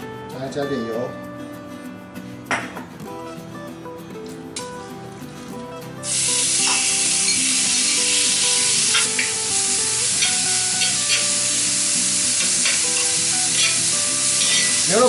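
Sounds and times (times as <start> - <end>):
meat sizzling in hot oil: 6.0 - 15.0
tongs clicking against pan: 12.4 - 14.8.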